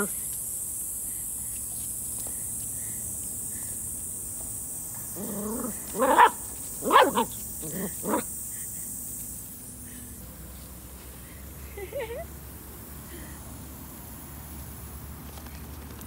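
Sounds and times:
lawn sprinkler spray hissing: 0.0s - 13.0s.

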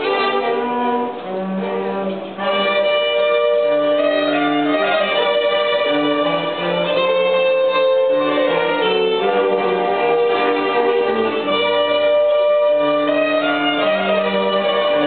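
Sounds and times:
string ensemble bowed notes: 0.0s - 15.0s.

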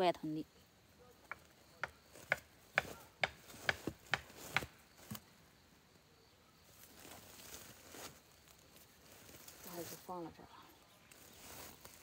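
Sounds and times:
rustle of leaves and twigs: 0.6s - 12.0s
sharp knocks: 1.3s - 4.7s.

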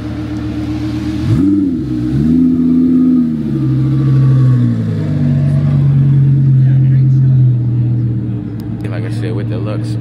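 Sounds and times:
car engine revving past: 0.0s - 8.2s.

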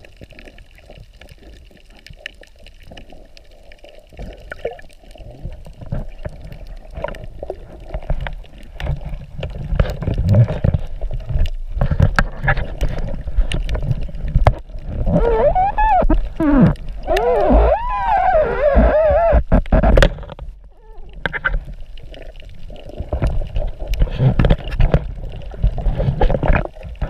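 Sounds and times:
underwater water rumble: 0.0s - 27.0s.

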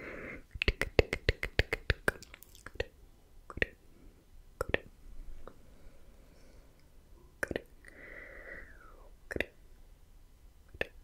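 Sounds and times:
soft breathy mouth sound: 0.0s - 9.6s
tongue clicks: 0.5s - 3.8s, 4.6s - 5.6s, 6.8s - 7.8s, 9.3s - 9.6s, 10.7s - 11.0s.

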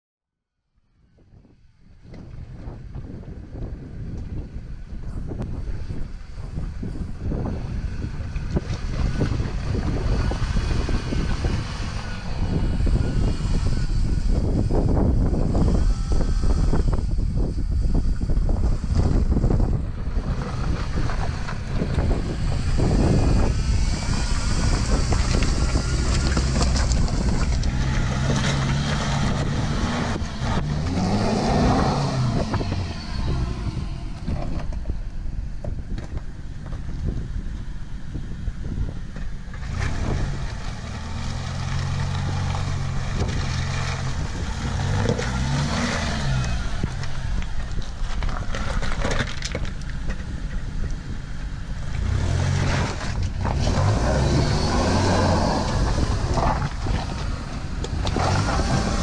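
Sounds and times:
wind buffeting microphone: 1.1s - 59.0s
engine running: 1.8s - 59.0s
vehicle rolling on stony track: 2.0s - 59.0s
tyres crunching over wet stones: 20.3s - 33.6s, 39.6s - 51.0s.

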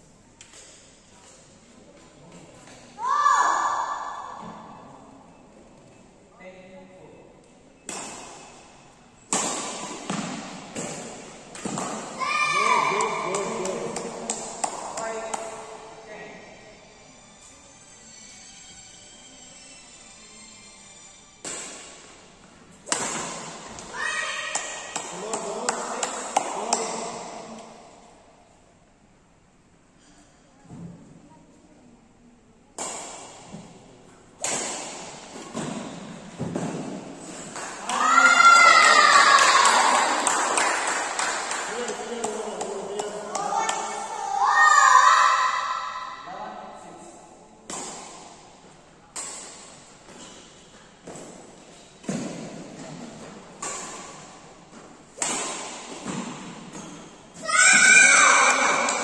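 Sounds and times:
loud shout: 3.0s - 4.3s, 12.2s - 13.3s, 23.9s - 24.6s, 37.8s - 40.3s, 43.4s - 46.3s, 57.4s - 59.0s
rackets striking shuttlecock: 7.8s - 15.7s, 21.4s - 22.2s, 22.8s - 27.8s, 32.8s - 33.8s, 34.4s - 38.0s, 47.6s - 53.0s, 53.6s - 57.2s.

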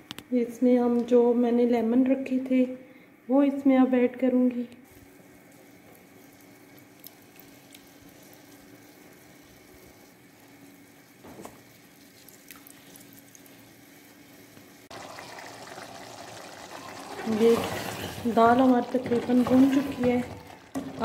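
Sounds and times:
curry bubbling in a pot: 14.9s - 21.0s.

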